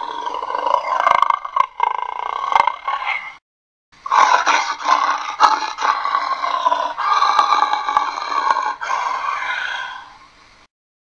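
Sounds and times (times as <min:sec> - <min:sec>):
person roaring through cardboard tube: 0:00.0 - 0:03.2.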